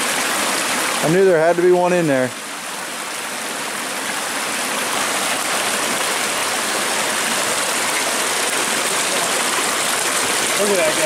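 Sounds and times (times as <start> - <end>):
stream flowing over rocks: 0.0 - 11.0.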